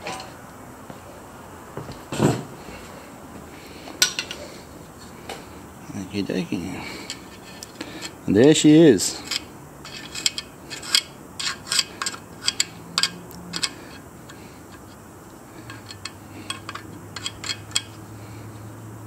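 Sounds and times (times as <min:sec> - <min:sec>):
screwdriver scraping metal: 0:09.2 - 0:15.0, 0:15.6 - 0:18.0.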